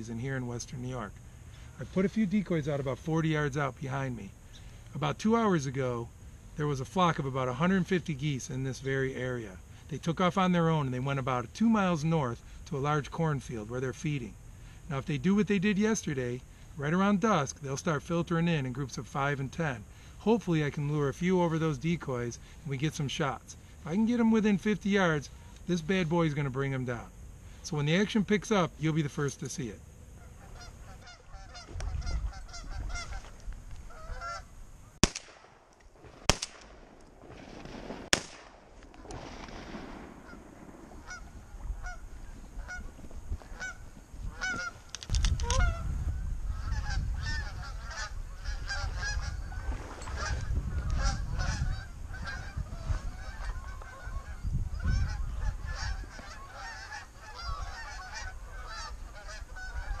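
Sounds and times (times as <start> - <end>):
geese honking: 27.6 - 34.6, 40.2 - 45.9, 46.5 - 60.0
shotgun shots: 35.0 - 42.0.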